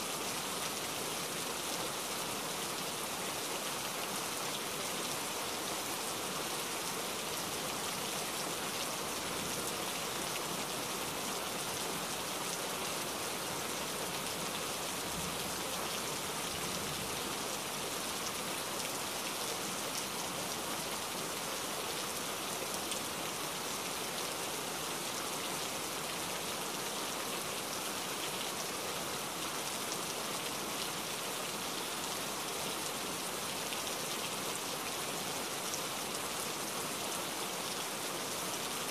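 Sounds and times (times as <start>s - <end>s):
steady rain falling: 0.0s - 38.9s.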